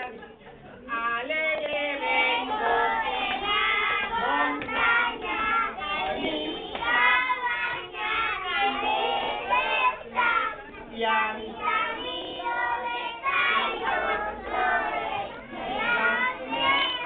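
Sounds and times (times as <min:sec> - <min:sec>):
woman singing: 0:00.9 - 0:02.9, 0:04.0 - 0:07.9, 0:10.8 - 0:12.0, 0:15.8 - 0:17.0
children singing: 0:01.7 - 0:17.0.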